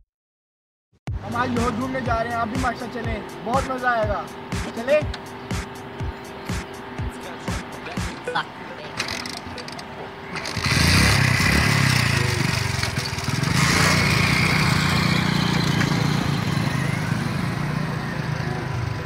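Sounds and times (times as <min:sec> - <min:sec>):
small motorcycle engine: 0:08.9 - 0:19.0.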